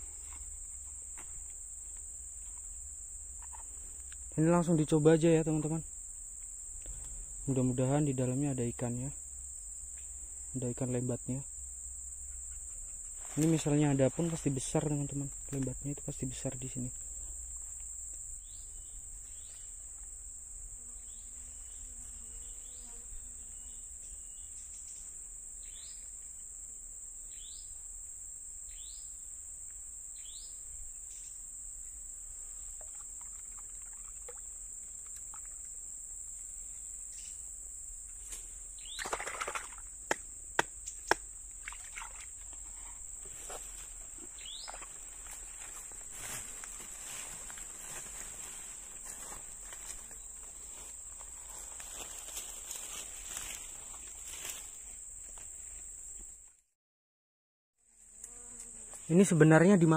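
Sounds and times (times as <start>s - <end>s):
rustle: 0.0s - 4.5s, 11.5s - 15.8s, 16.7s - 40.0s, 40.8s - 56.3s
high-pitched insect drone: 0.0s - 38.1s.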